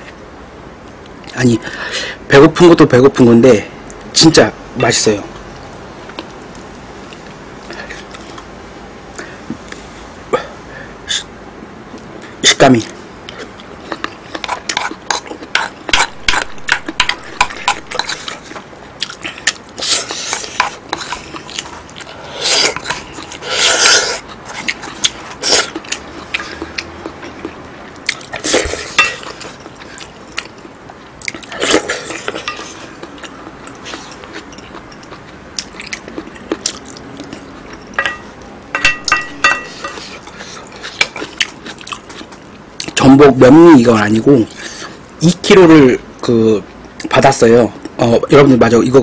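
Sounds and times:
wet chewing: 12.8s - 43.0s.

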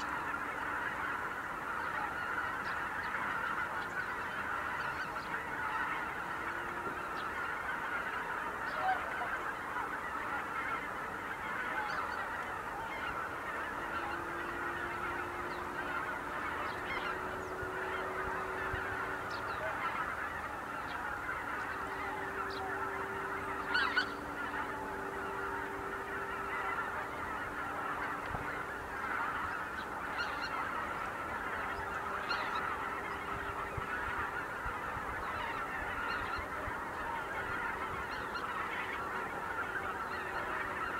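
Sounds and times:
flock of geese honking: 0.0s - 40.9s
nearer goose calling loudly: 0.0s - 40.9s.

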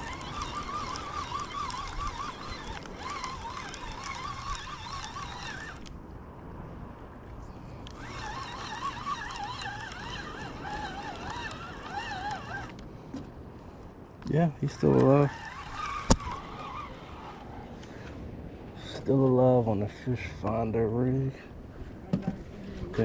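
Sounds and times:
fishing reel whirring: 0.0s - 6.0s, 7.8s - 12.8s, 14.5s - 18.0s.

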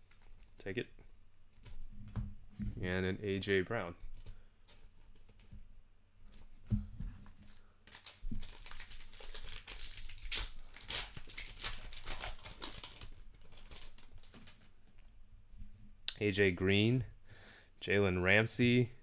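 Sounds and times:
wrapper crinkling and tearing: 7.4s - 14.7s.

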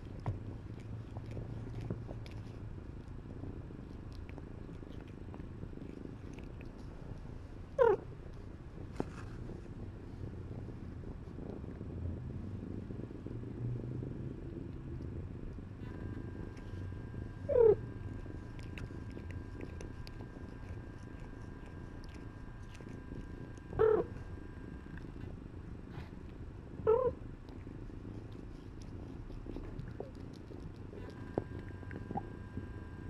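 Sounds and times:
cat purring: 0.0s - 33.0s
cat mewing: 17.5s - 17.8s, 23.7s - 24.2s, 26.9s - 27.2s.

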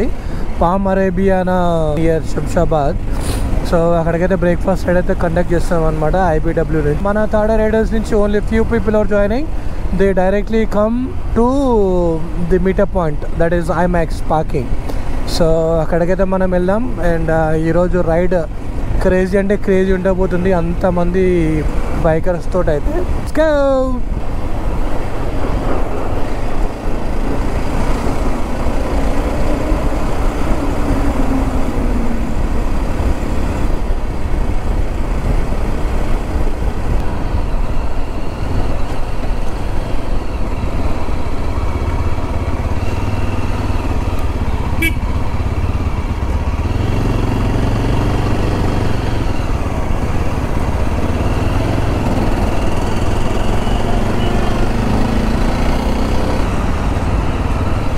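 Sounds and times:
road and wind noise: 0.0s - 57.9s
motorcycle engine accelerating: 42.0s - 57.9s.

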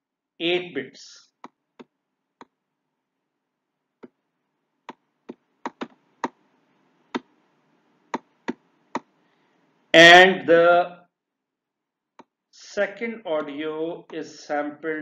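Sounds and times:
stylus clicking on pen tablet: 4.8s - 6.4s.

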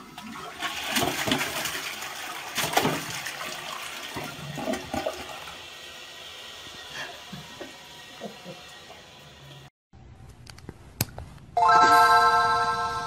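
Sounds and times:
toilet flushing: 0.0s - 9.7s.

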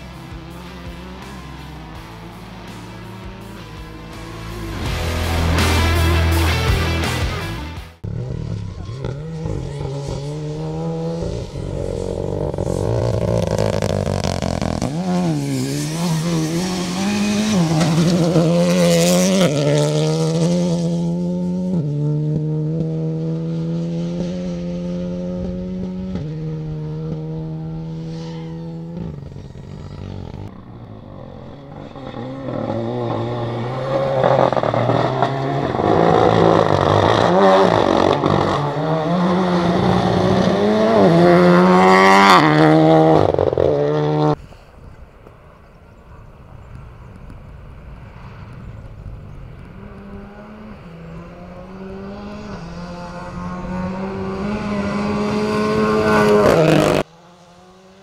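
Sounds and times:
rally car engine revving: 0.0s - 44.4s, 48.2s - 58.0s
gravel scraping under tyres: 8.0s - 21.2s, 26.2s - 57.9s.

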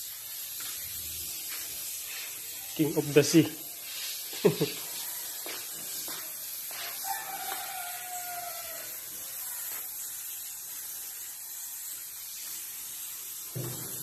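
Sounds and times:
airbrush hissing: 0.0s - 14.0s
rooster crowing: 5.0s - 9.2s.

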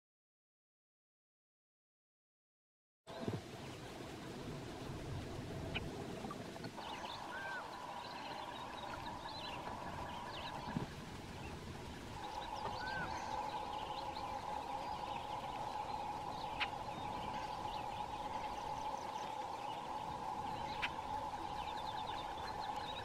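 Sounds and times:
droning insect chorus: 6.7s - 23.0s
bird chirps: 6.8s - 10.8s, 12.2s - 23.0s
whistled bird calls: 6.8s - 10.8s, 12.2s - 23.0s.

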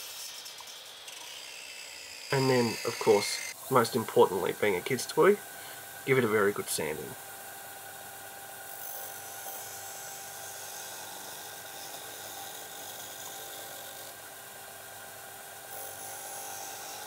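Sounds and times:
wood grinding against sanding disc: 0.0s - 5.2s
disc sander whirring: 0.0s - 5.4s.

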